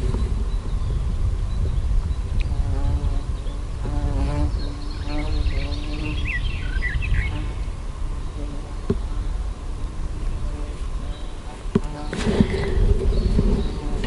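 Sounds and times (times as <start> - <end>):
flying insect buzzing: 2.4 - 14.0
bird chirps: 4.3 - 7.7.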